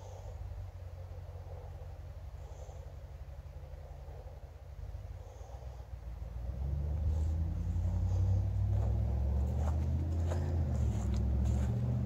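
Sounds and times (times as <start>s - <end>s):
passing vehicle engine rumble: 0.0s - 12.0s
footsteps on forest floor: 8.6s - 12.0s.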